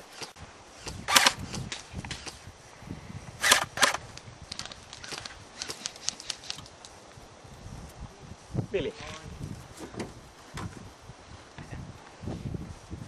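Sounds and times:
airsoft rifle shots: 0.9s - 1.5s, 3.4s - 4.0s.

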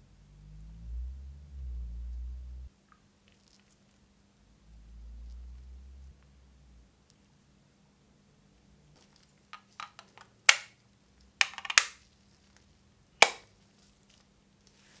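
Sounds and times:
plastic case clicking: 11.4s - 12.0s.

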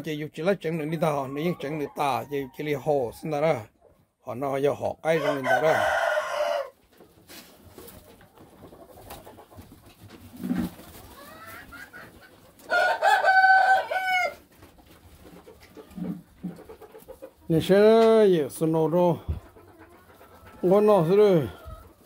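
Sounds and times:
rooster crowing: 5.2s - 6.7s, 12.7s - 14.4s
short chicken calls: 10.4s - 14.4s.

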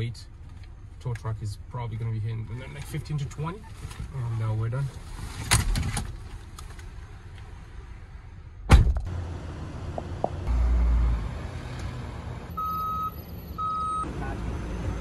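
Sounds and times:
road traffic hum: 0.0s - 15.0s
vehicle door slamming: 8.7s - 9.1s.

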